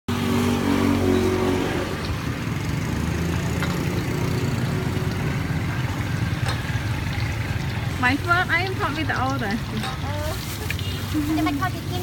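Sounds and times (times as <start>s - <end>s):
hot oil sizzling: 0.1s - 12.0s
vehicle engine hum: 0.1s - 12.0s.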